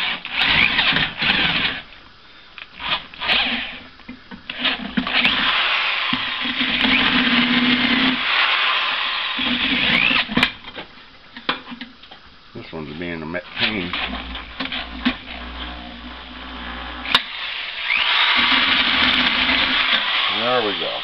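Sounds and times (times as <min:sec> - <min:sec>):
electric drill boring into wood: 0:00.0 - 0:01.9, 0:02.8 - 0:03.9, 0:04.5 - 0:10.6, 0:13.6 - 0:21.0.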